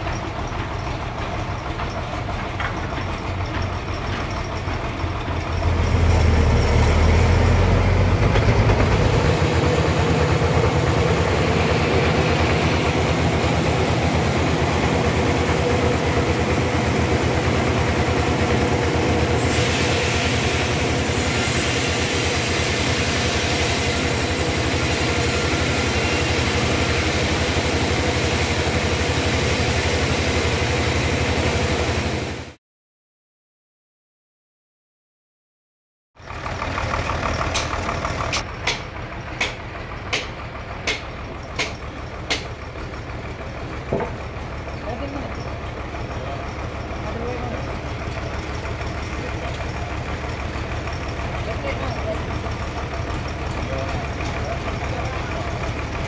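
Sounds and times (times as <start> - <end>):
band sawmill drone: 5.3 - 32.5.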